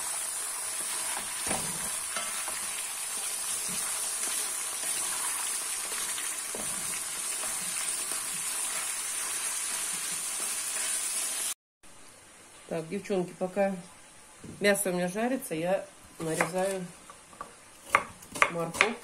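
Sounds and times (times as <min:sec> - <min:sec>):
meat sizzling in hot oil: 0:00.0 - 0:11.6
wooden spatula turning meat: 0:00.5 - 0:11.0.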